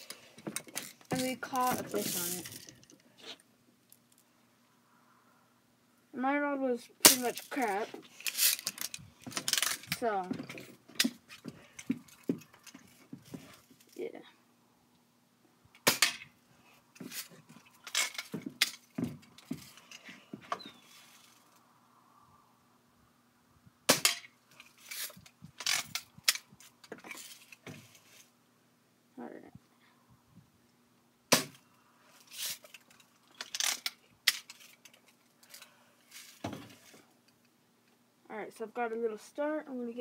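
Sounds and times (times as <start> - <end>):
rustling scrapes: 0.0 - 3.4, 7.3 - 14.0, 16.6 - 18.4, 19.3 - 21.6, 24.5 - 26.0, 26.6 - 28.4, 32.1 - 33.6, 35.5 - 37.1
faint steady hum: 0.0 - 40.0.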